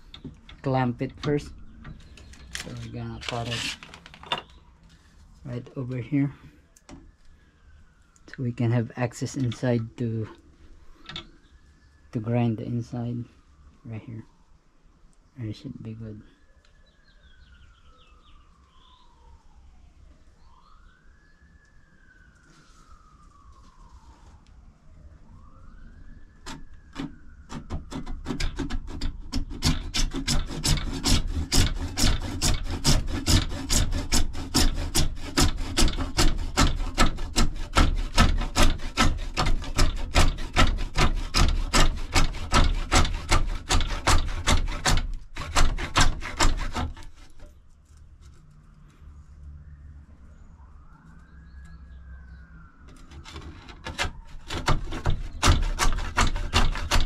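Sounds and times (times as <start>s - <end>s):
handsaw cutting plastic pipe: 2.5s - 4.0s, 26.4s - 47.5s, 52.9s - 57.0s.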